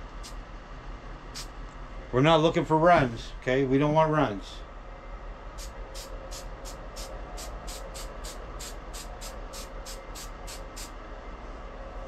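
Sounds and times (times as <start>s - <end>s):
aerosol spray can hissing: 5.6s - 10.9s.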